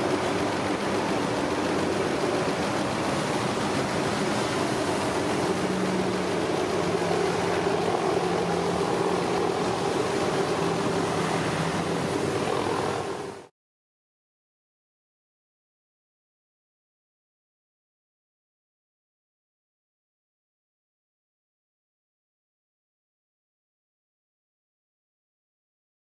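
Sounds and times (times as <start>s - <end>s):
engine humming: 0.0s - 13.5s
heavy surf roaring: 0.0s - 13.5s.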